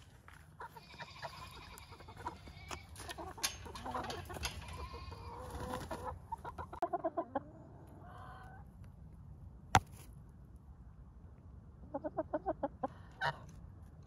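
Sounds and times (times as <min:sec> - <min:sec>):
hens clucking: 0:00.5 - 0:08.7, 0:11.8 - 0:13.6.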